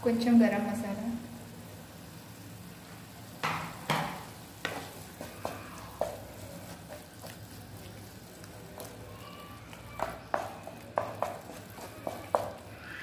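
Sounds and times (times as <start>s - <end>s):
curry sizzling faintly: 0.0s - 13.0s
spatula scraping frying pan: 4.2s - 13.0s.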